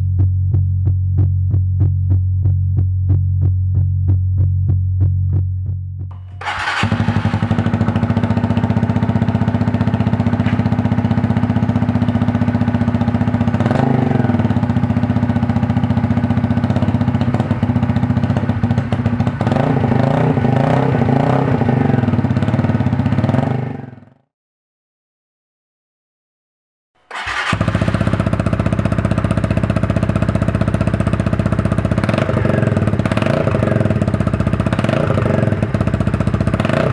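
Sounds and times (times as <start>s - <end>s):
motorcycle engine running: 0.0s - 24.2s, 27.1s - 36.9s.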